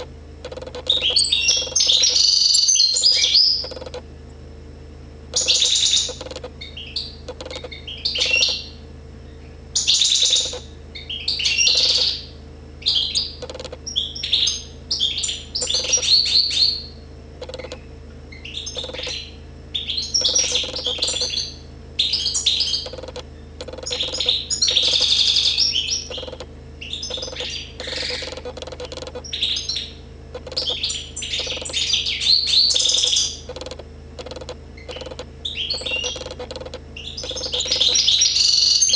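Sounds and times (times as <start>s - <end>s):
bird twittering song: 0.0s - 4.0s, 5.3s - 38.9s.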